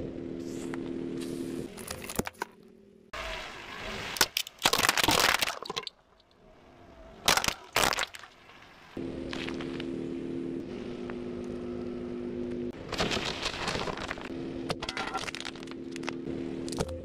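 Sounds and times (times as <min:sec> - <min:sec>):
engine hum: 0:00.0 - 0:04.2, 0:05.9 - 0:17.0
plastic cracking and crunching: 0:04.2 - 0:05.9, 0:07.3 - 0:08.3, 0:12.8 - 0:14.3, 0:15.1 - 0:16.2.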